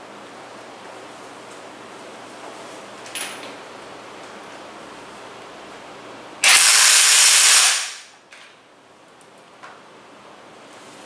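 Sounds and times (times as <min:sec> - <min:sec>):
impact wrench driving a bolt: 0:06.4 - 0:08.0.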